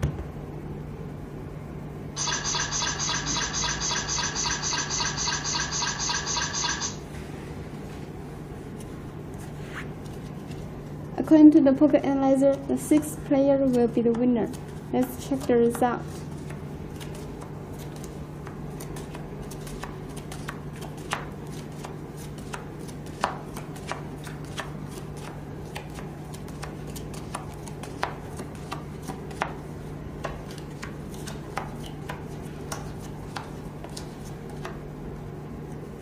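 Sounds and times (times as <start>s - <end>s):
steady low hum: 0.0s - 36.0s
playing cards snapping and tapping: 16.5s - 29.6s, 30.2s - 34.8s.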